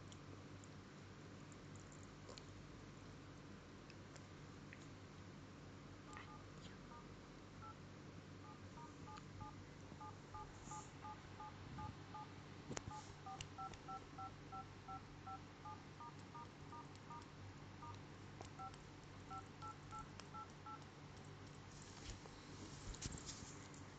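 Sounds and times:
phone dial-pad touch tones: 0:08.4 - 0:12.3, 0:12.9 - 0:18.0.

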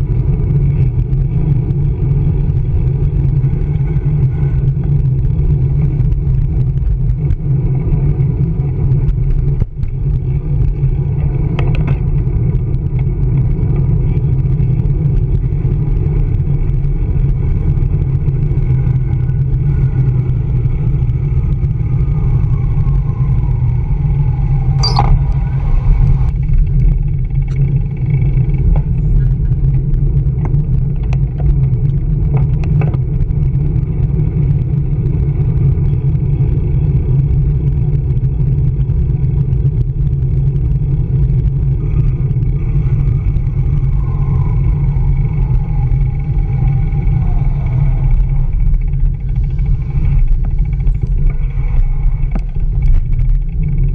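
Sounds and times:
city street traffic: 0:00.0 - 0:53.9
wind rumble on microphone: 0:00.0 - 0:53.9
sharp high squeak: 0:24.8 - 0:25.7.

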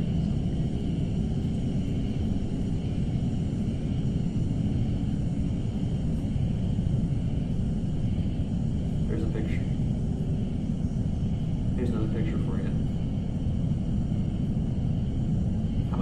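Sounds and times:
faint high whine: 0:00.0 - 0:16.0
low rumble: 0:00.0 - 0:16.0.

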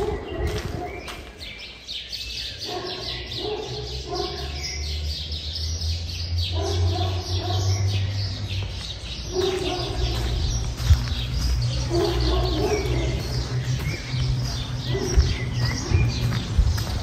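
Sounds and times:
small birds chirping: 0:00.0 - 0:17.0
low rumble: 0:09.1 - 0:17.0.

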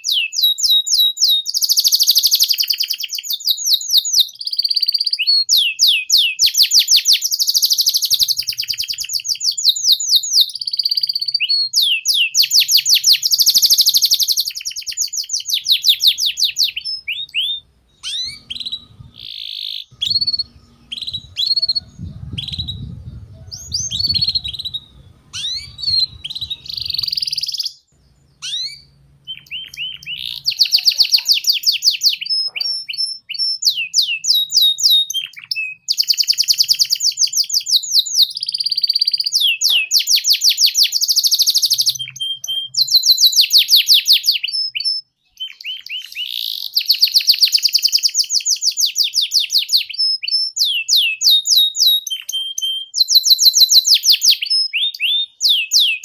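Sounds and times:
canary trilling and chirping: 0:12.4 - 0:37.0, 0:40.6 - 0:48.1
low background rumble: 0:17.6 - 0:19.3, 0:20.0 - 0:27.0, 0:28.0 - 0:30.5.

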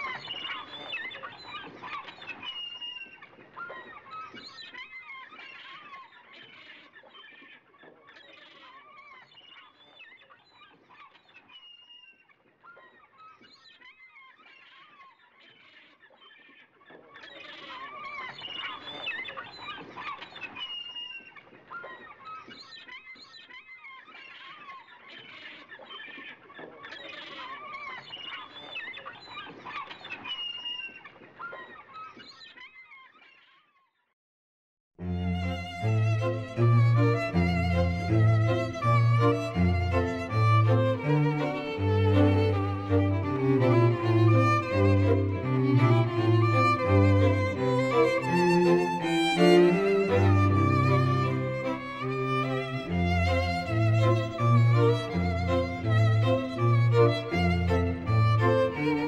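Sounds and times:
gulls squawking: 0:35.3 - 0:59.0.

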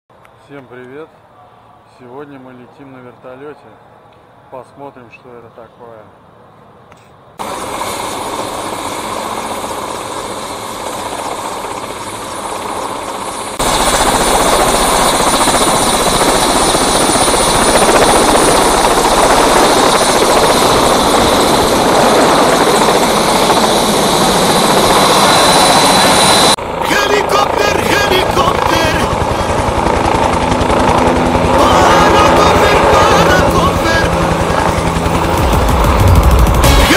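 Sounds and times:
helicopter engine and rotor noise: 0:06.9 - 0:36.9
high turbine whine: 0:07.4 - 0:36.9.

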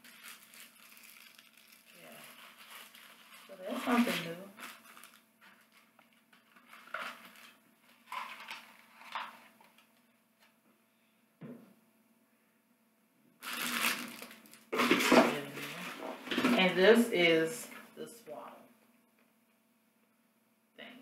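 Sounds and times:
packaging rustling and crunching: 0:00.0 - 0:09.8, 0:13.4 - 0:16.7
packaging scraping and crinkling: 0:00.0 - 0:09.8, 0:13.4 - 0:16.8.

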